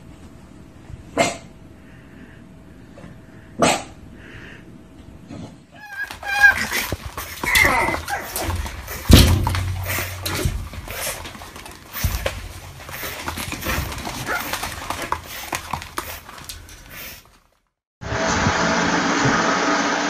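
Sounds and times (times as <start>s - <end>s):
small dog sounds: 5.7s - 17.3s
paws clicking on glass and floor: 5.8s - 17.7s
heavy thump: 7.0s - 14.3s.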